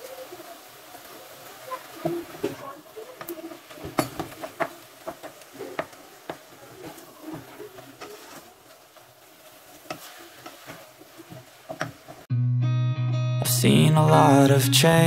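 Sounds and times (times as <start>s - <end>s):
meat sizzling: 0.0s - 12.3s
wooden spoon scraping a metal pot: 5.6s - 9.1s, 9.7s - 12.2s.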